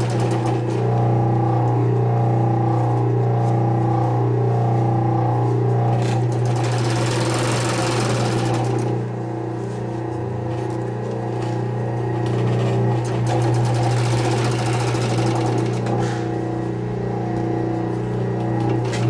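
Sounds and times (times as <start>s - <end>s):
overlock machine rattling: 0.0s - 1.0s, 12.1s - 16.1s.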